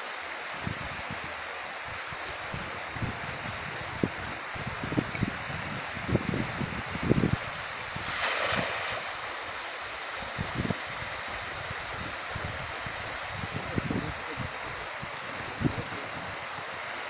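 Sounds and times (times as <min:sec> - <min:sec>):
river water running: 0:00.0 - 0:17.0
net splashing on water: 0:07.6 - 0:09.3.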